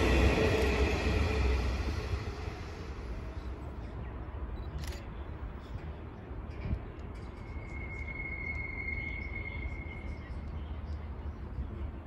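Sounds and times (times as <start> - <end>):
steady high-pitched tone: 0.0 - 3.8, 7.4 - 10.6
steady low rumble: 0.0 - 6.2.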